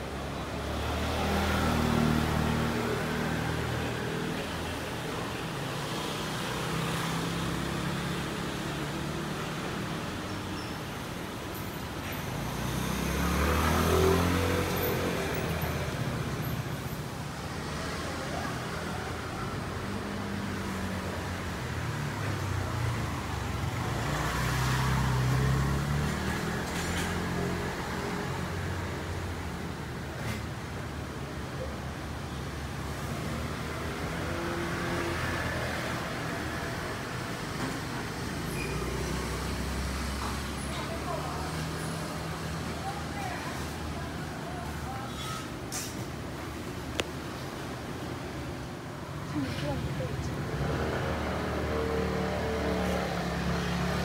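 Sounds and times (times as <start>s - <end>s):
traffic noise: 0.0s - 54.0s
vehicle passing by: 0.6s - 4.2s, 12.4s - 16.4s, 22.7s - 28.9s, 49.2s - 54.0s.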